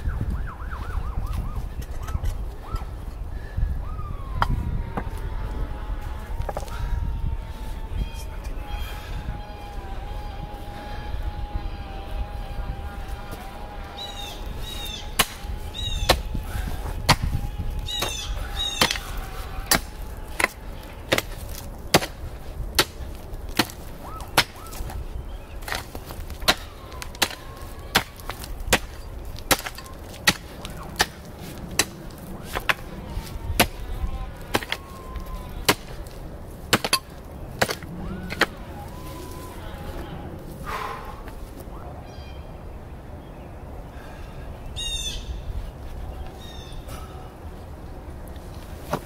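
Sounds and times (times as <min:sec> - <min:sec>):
birds chirping: 0:07.6 - 0:48.2
pickaxe striking rocky soil: 0:18.8 - 0:24.9, 0:25.6 - 0:38.6.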